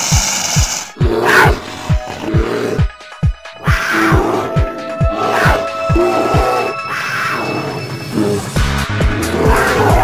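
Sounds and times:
music with fast bass-drum beat: 0.0s - 6.4s, 8.5s - 10.0s.

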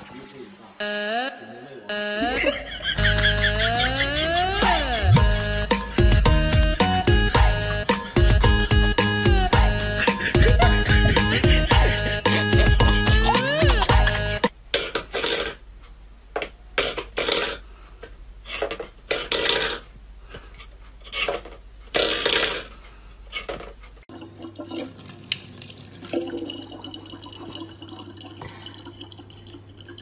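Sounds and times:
tap running in thin stream: 24.1s - 30.0s.

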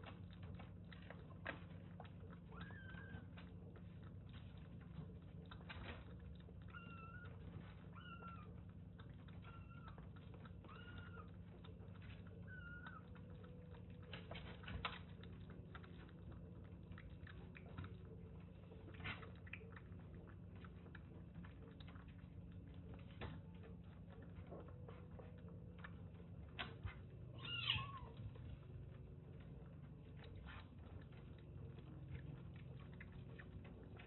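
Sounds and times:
kitten mewing: 27.4s - 28.2s.

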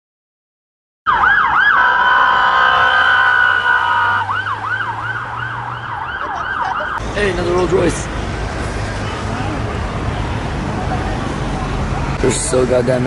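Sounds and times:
police siren wailing and yelping: 1.1s - 7.0s.

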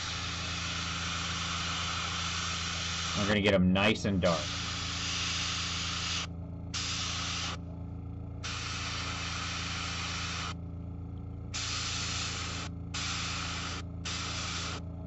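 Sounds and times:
airbrush spraying hiss: 0.0s - 3.4s, 4.3s - 7.6s, 8.4s - 10.6s, 11.6s - 14.8s
steady low hum: 0.0s - 15.0s.

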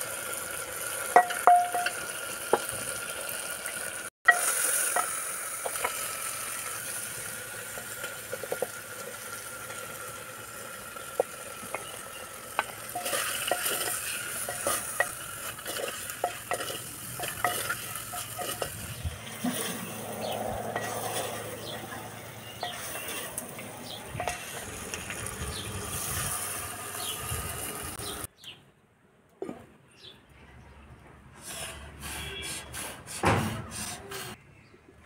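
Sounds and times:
vegetables sizzling in a pot: 0.0s - 28.3s
spatula scraping clay pot: 12.6s - 21.8s, 31.4s - 34.4s.

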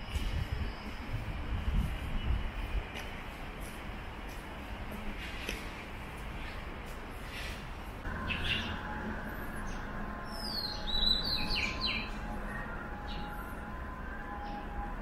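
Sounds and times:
bird chirping: 8.2s - 8.8s, 9.6s - 13.4s.

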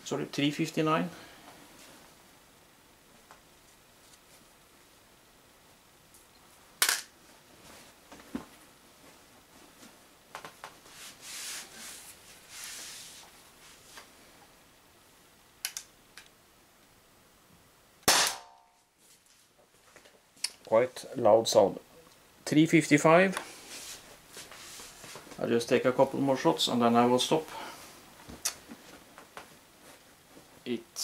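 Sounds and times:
rustling: 3.6s - 4.6s, 7.2s - 14.2s, 23.5s - 25.4s
pistol shot with ringing: 18.0s - 18.6s.

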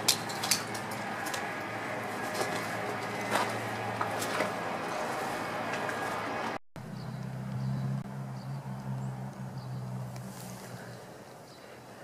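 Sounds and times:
footsteps on gravel: 2.1s - 6.2s.

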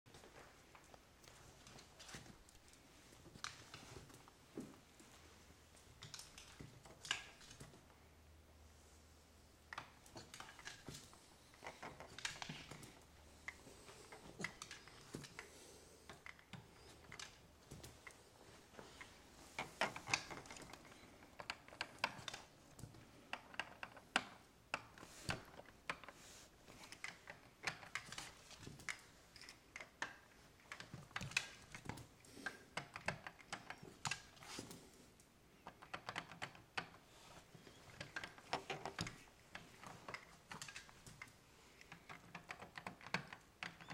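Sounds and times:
dog claws clicking on tiles: 5.8s - 8.0s, 9.6s - 43.9s.

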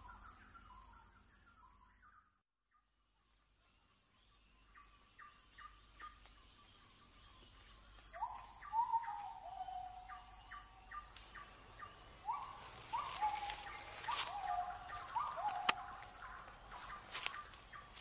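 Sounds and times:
birds chirping: 4.0s - 18.0s
rustle: 12.2s - 18.0s.

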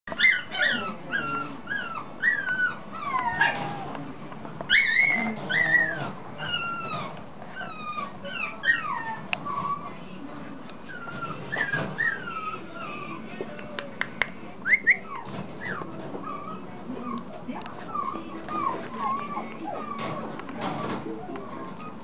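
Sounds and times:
puppy whimpering and yelping: 0.1s - 3.9s, 4.7s - 9.9s, 10.9s - 13.2s, 15.0s - 17.3s, 17.9s - 20.3s.

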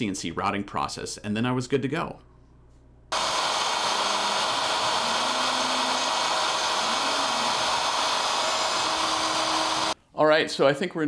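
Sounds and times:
wood router whining: 3.1s - 10.0s.

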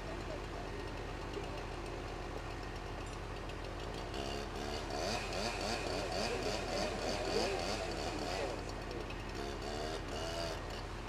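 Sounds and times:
chainsaw cutting wood: 3.9s - 10.9s.

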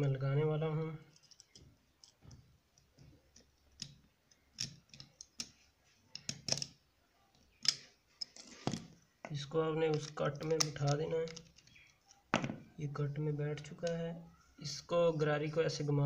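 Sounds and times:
small metal clicks and scrapes: 1.1s - 2.4s, 3.0s - 6.8s, 9.9s - 12.3s.

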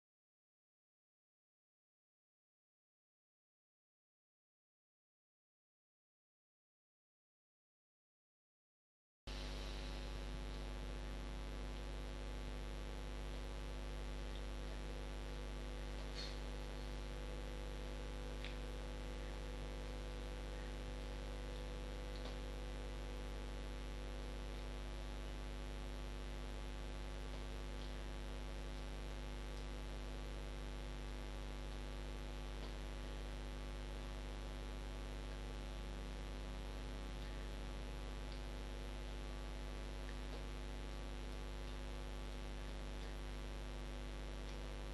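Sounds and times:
electrical hum: 9.3s - 44.9s
faint ticks: 38.3s - 43.7s, 44.3s - 44.8s.

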